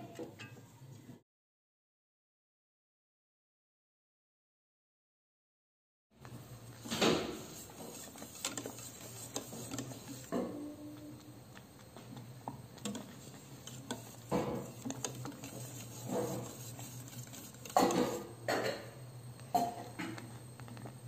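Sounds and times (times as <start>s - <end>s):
whisk scraping a metal pan: 6.8s - 10.8s, 12.8s - 18.7s.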